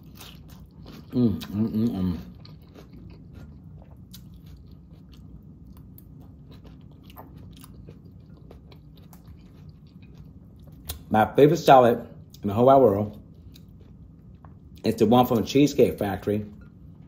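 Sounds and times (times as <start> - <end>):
person crunching salad: 0.0 - 11.1.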